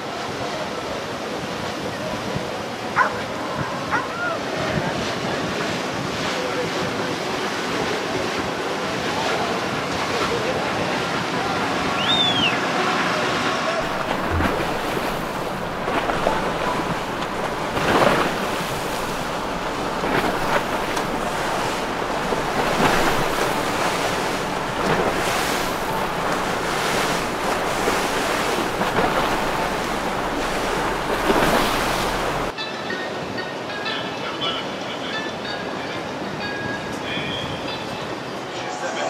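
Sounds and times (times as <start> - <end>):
water wash and boat wakes: 0.0 - 33.3
low boat engine hum: 6.5 - 32.5
wind buffeting microphone: 13.8 - 32.5.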